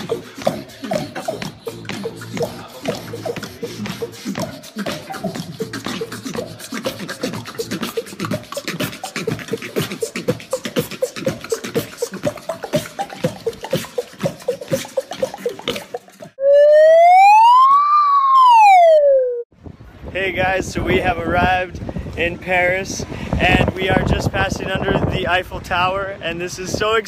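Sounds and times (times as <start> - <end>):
person beatboxing: 0.0 - 16.4
siren tone rising in pitch: 16.4 - 19.5.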